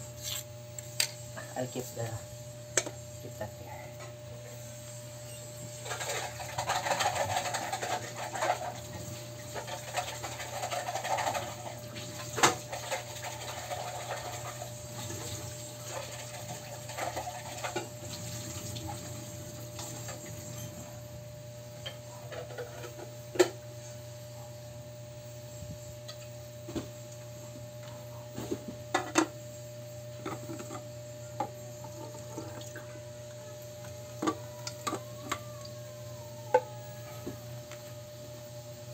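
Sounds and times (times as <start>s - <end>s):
faint steady hum: 0.0s - 38.9s.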